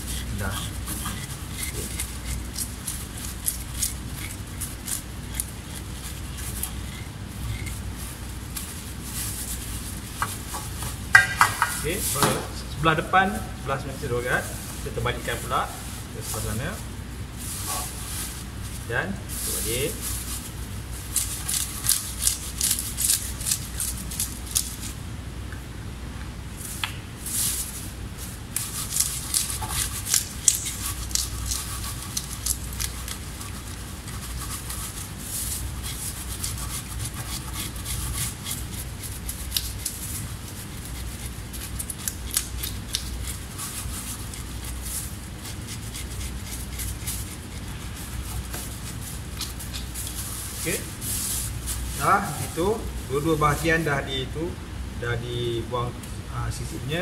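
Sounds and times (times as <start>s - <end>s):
blade scraping fish scales: 0.0s - 10.2s, 21.0s - 25.0s, 27.3s - 52.1s.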